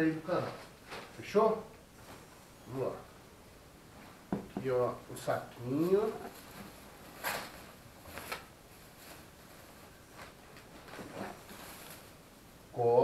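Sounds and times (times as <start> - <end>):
plastic bag rustling: 0.3 - 1.4, 5.3 - 12.3.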